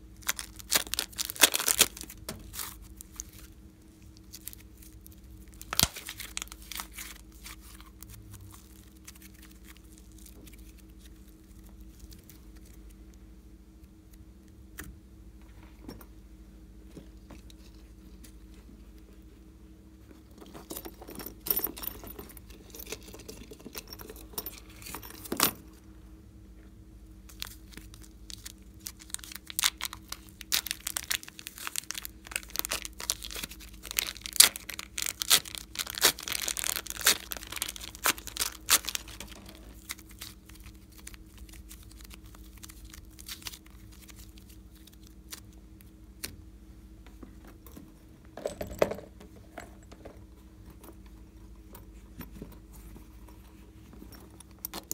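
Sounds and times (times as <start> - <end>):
plastic sheet crackling and tearing: 0.2 - 3.4, 5.5 - 11.0, 27.4 - 45.4.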